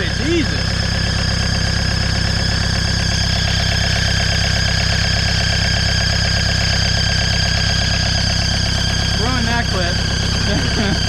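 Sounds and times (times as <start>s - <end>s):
diesel engine idling: 0.0s - 11.0s
high-pitched tone: 0.0s - 11.0s.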